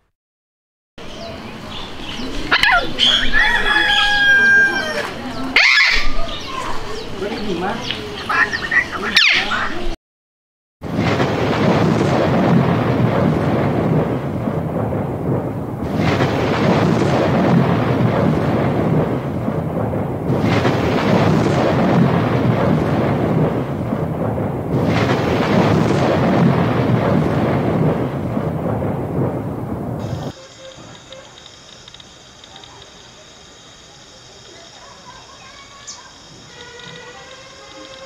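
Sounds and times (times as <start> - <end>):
rushing and rumbling noise: 10.8 - 35.3.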